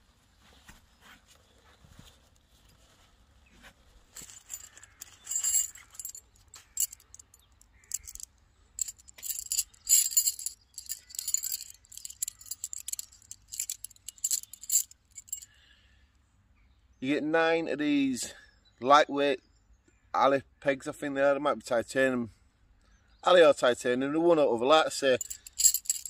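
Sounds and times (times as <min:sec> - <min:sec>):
metal tent pegs clinking: 0:04.2 - 0:15.4, 0:25.1 - 0:26.0.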